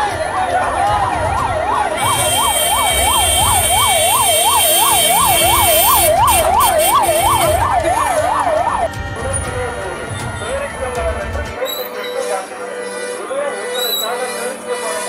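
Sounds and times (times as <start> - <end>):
ambulance siren yelping: 0.0 - 9.2.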